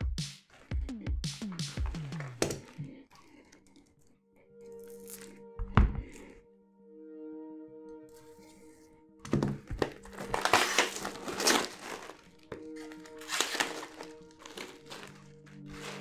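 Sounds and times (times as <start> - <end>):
quiet background music: 0.0 - 16.0
wrapping crinkling and tearing: 9.8 - 16.0.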